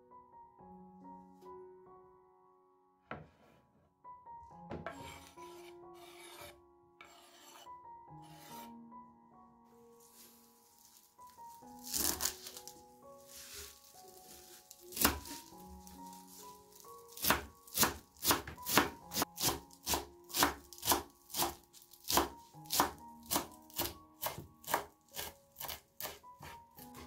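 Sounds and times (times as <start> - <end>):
soft background music: 0.0 - 27.0
knife chopping on cutting board: 14.9 - 15.6, 17.1 - 27.0.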